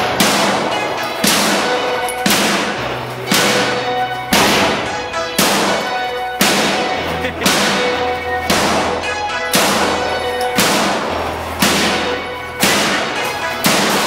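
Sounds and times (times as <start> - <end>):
loud drum hits with reverb: 0.0 - 5.8, 6.4 - 10.0
held synth chord: 0.0 - 14.0
rock music: 0.0 - 14.0.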